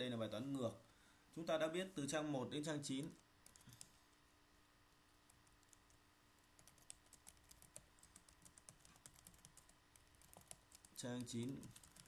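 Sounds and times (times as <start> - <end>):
typing on computer keyboard: 6.6 - 12.0.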